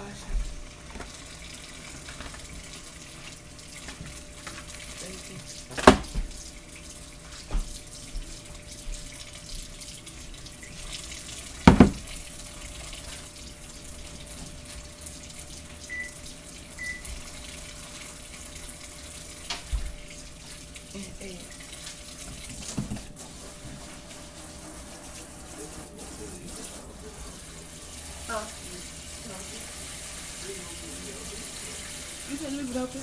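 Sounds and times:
tap running into sink: 5.7s - 6.4s, 7.3s - 8.3s, 11.6s - 12.3s, 19.4s - 20.6s, 21.8s - 23.9s
loud sharp knocks: 11.7s - 12.0s.

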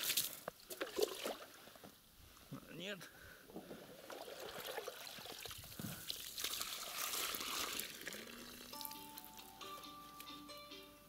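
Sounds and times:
water pouring from scoop: 4.0s - 8.9s.

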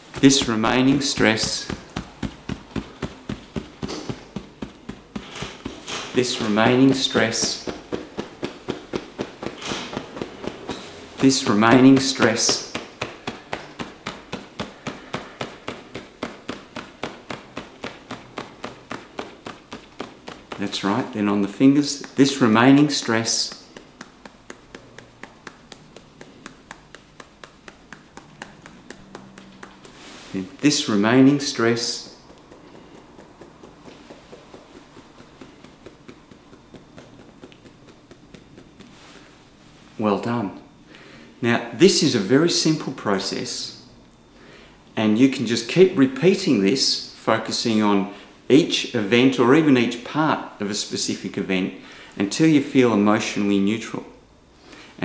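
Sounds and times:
fingertips tapping on chest: 0.0s - 39.5s.

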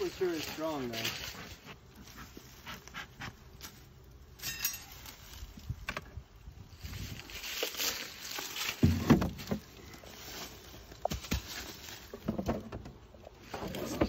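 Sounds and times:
wooden cover scraping: 6.9s - 14.0s.

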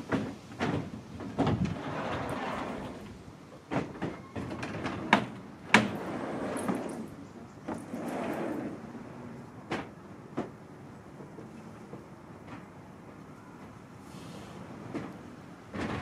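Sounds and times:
wooden shutters rumbling in track: 0.0s - 8.8s.

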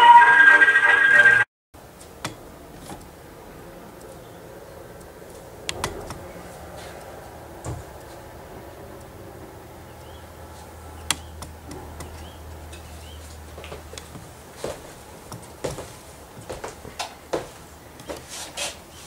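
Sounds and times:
low hum: 2.3s - 14.0s
sharp click: 11.0s - 12.9s.

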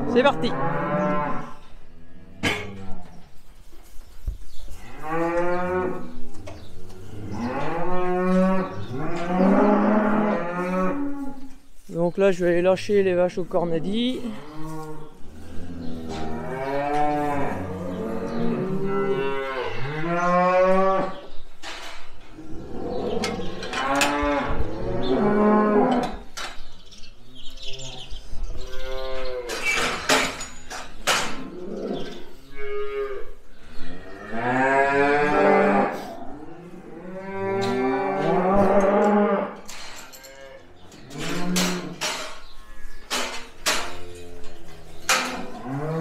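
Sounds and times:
cows mooing: 0.0s - 3.0s, 4.9s - 6.2s, 6.9s - 11.4s, 14.2s - 21.3s, 22.3s - 26.3s, 31.3s - 42.9s, 43.6s - 46.0s.

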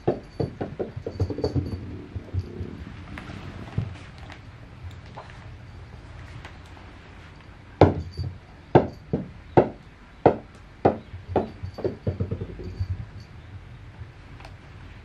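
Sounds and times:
rubber ball bouncing on wooden floor: 10.3s - 13.0s.

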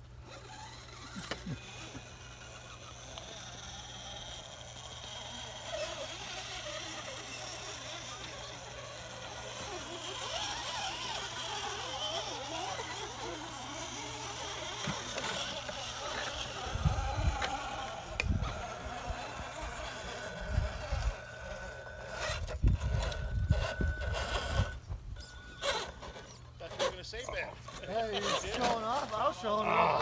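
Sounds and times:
electric motor whining: 0.0s - 30.0s
faint voices talking: 2.0s - 22.2s.

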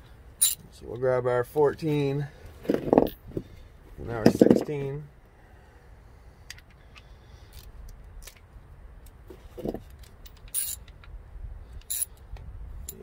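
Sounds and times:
metal sockets clicking and clinking: 0.4s - 0.6s, 9.6s - 11.1s, 11.8s - 12.2s.

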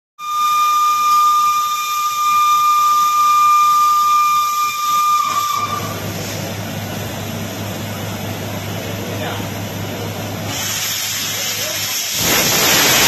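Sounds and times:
steam whistle blast: 0.2s - 6.4s
steam hiss: 4.0s - 6.7s, 10.4s - 13.0s.

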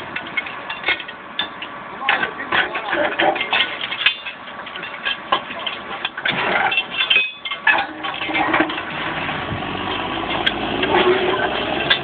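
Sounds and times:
steel tools clinking on rail fastenings: 0.1s - 8.9s
backhoe engine running: 3.7s - 12.0s.

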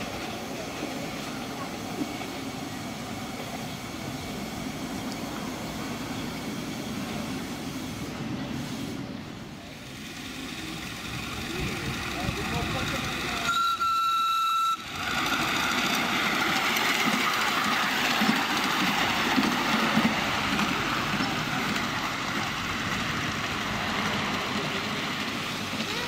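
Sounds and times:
small train rumbling on track: 0.0s - 26.0s
small locomotive whistle: 13.4s - 14.9s.

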